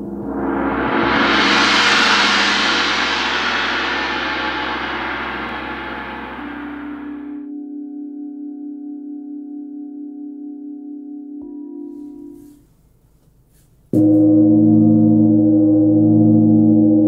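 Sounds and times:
gong shimmering: 0.0 - 7.4, 14.0 - 17.0.

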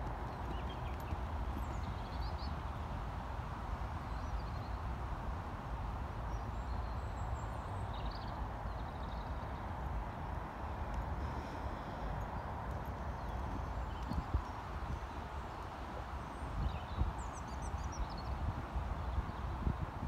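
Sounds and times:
small birds chirping: 0.0 - 2.6
wind rumble on microphone: 0.0 - 20.0.

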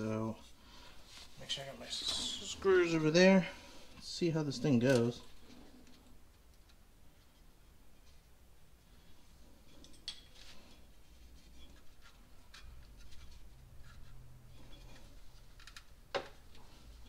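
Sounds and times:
faint clicks and scrapes of metal parts: 4.0 - 17.0.

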